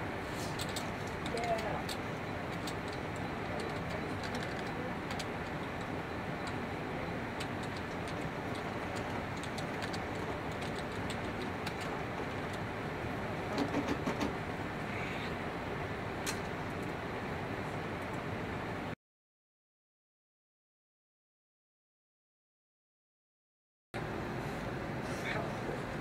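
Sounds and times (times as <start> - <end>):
keyboard keys clicking: 0.6 - 6.6, 7.4 - 12.6.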